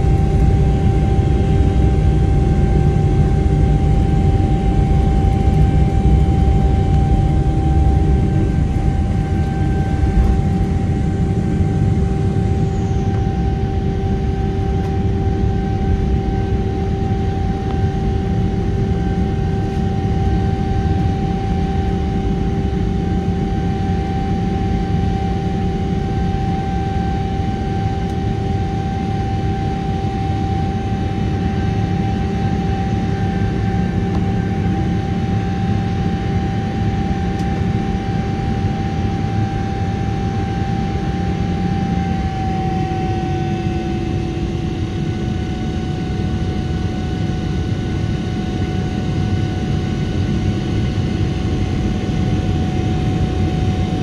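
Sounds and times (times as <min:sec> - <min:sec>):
jet engine roar in cabin: 0:00.0 - 0:54.0.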